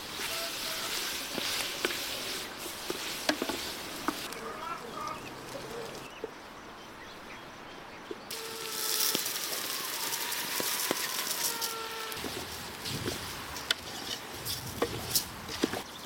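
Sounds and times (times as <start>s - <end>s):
vegetables sizzling in a pot: 0.0s - 4.3s, 8.3s - 14.1s
wooden spoon stirring: 0.0s - 4.4s
grain pouring into hot pot: 8.3s - 11.8s.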